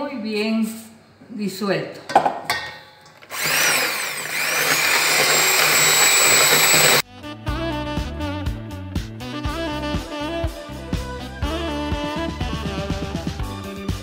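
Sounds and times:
electric hand mixer whine: 3.3s - 7.0s
jazz music with saxophone: 7.0s - 13.8s.

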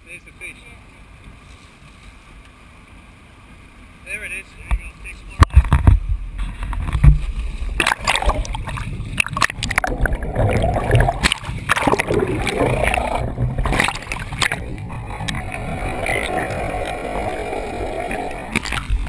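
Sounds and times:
water rushing and gurgling: 2.6s - 19.0s
steady low rumble: 4.4s - 19.0s
water splashes and knocks: 4.6s - 16.4s, 18.5s - 19.0s.

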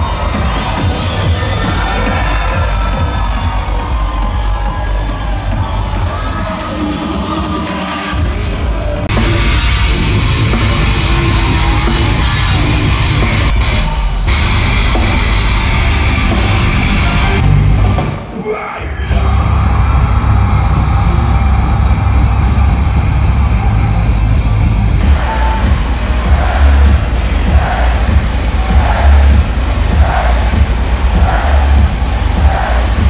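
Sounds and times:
heavy drums: 0.0s - 33.0s
heavy metal band playing live: 0.0s - 33.0s
distorted guitar: 9.1s - 18.2s, 19.0s - 33.0s
shouted vocals: 25.0s - 33.0s.

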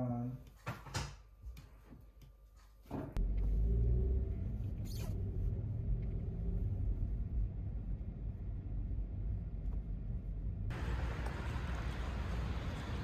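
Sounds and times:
steady low rumble: 3.2s - 13.0s.

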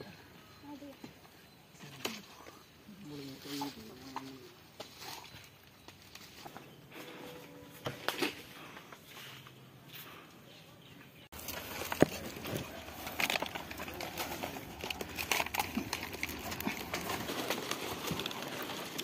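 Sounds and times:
dry palm leaves rustling and snapping: 3.2s - 7.2s, 11.3s - 19.0s.

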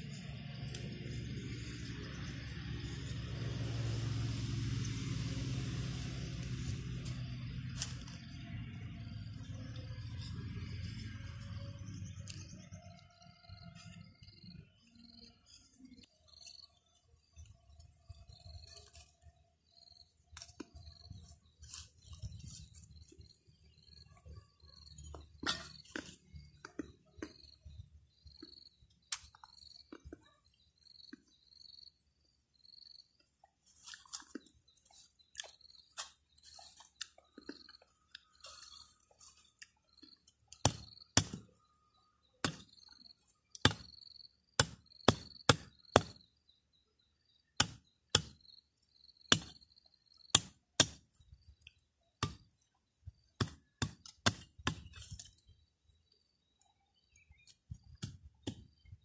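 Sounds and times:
blade chopping bamboo: 40.5s - 41.6s, 42.4s - 42.8s, 43.5s - 43.9s, 44.6s - 46.2s, 47.6s - 48.4s, 49.3s - 49.6s, 50.3s - 51.2s, 52.2s - 52.5s, 53.4s - 55.4s.

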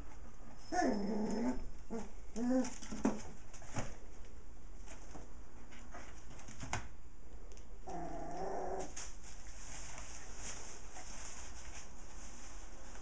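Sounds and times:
plastic bag and newspaper rustling: 8.8s - 13.0s.

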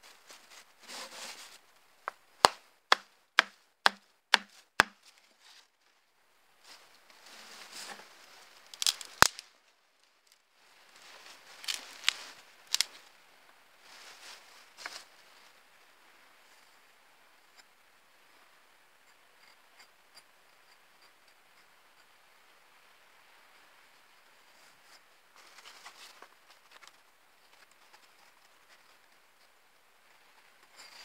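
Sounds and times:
rustling leaves and grass: 0.0s - 16.8s, 24.2s - 29.4s
knife chopping wooden stick: 2.4s - 5.0s
wood cracking and snapping: 8.7s - 9.5s, 11.6s - 12.9s.

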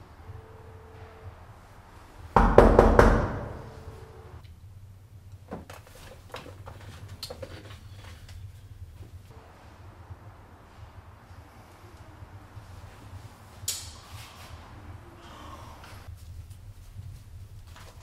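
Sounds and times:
heavy knocks: 2.4s - 3.8s.

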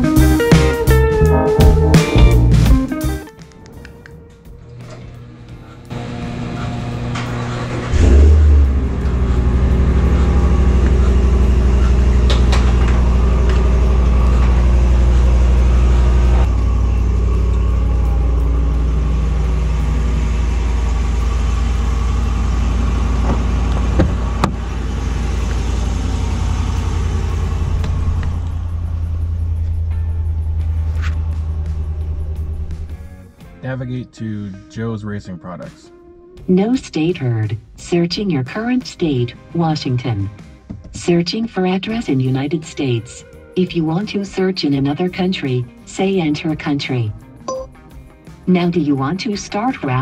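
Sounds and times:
truck engine starting and idling: 0.0s - 33.4s.

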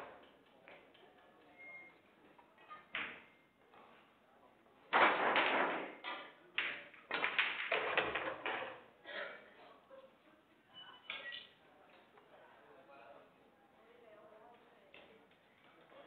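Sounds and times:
pool balls clicking together: 4.9s - 8.8s
voices in a hall: 8.8s - 16.0s.

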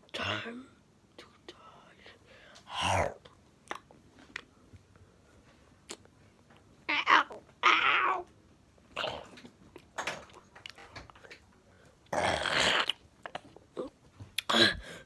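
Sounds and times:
person growling and grunting: 2.7s - 3.2s, 12.1s - 12.9s.

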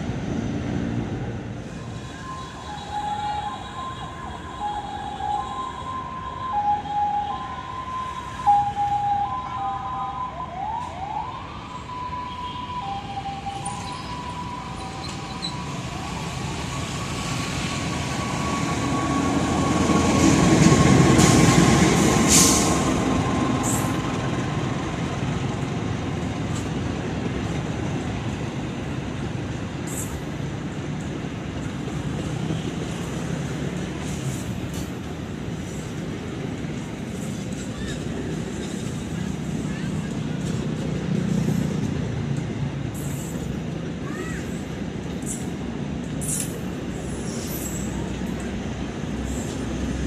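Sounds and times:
diesel locomotive rumble: 0.0s - 50.0s
two-tone warning signal: 1.9s - 21.1s
train carriages rolling on track: 11.5s - 50.0s.

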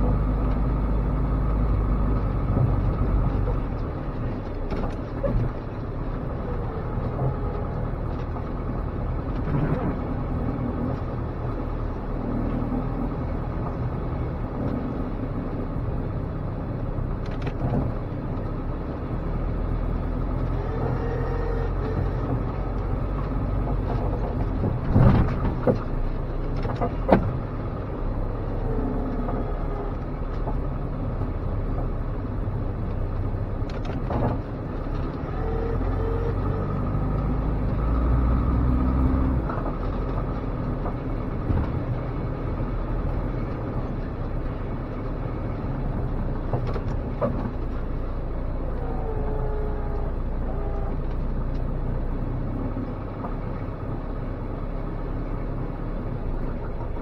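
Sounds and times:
truck engine under load: 0.0s - 57.0s
sharp clunks and knocks: 23.6s - 27.5s.

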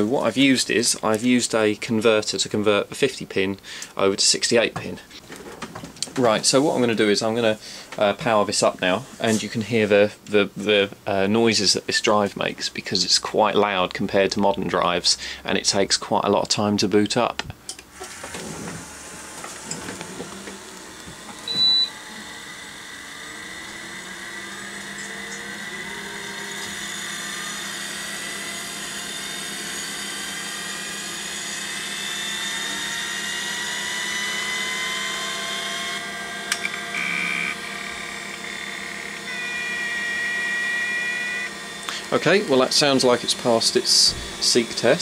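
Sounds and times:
hard drive spindle whine: 18.0s - 45.0s
short high beep: 21.5s - 21.9s.

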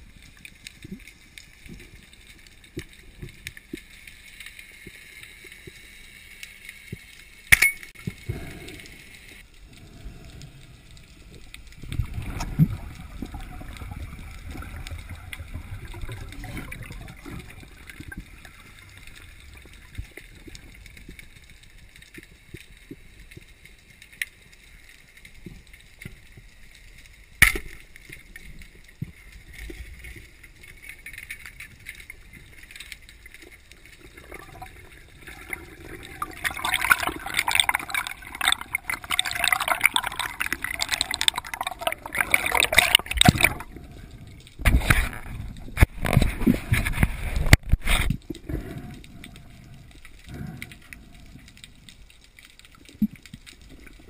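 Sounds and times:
bubbling crackle of water: 0.0s - 54.0s
small underwater clicks: 0.0s - 54.0s
loud splashing and rushing water: 35.3s - 43.7s.

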